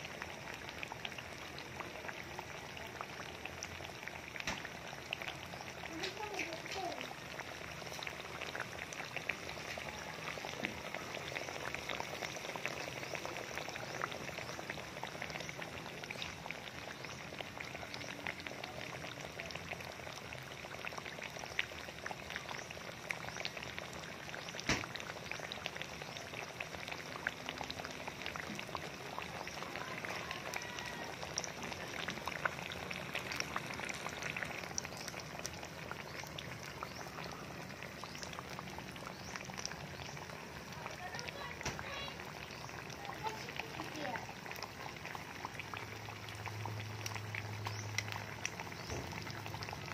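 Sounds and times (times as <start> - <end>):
food deep-frying in oil: 0.0 - 49.9
sharp oil pops: 24.6 - 25.0.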